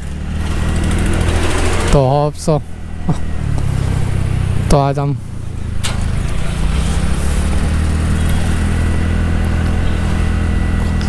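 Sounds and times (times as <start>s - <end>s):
scooter engine running: 0.0s - 11.0s
wind: 0.0s - 11.0s.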